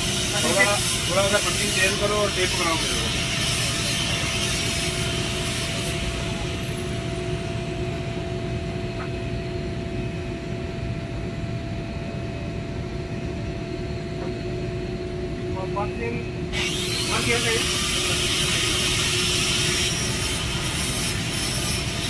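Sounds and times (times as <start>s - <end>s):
machinery humming and rumbling: 0.0s - 22.0s
hiss: 16.7s - 22.0s.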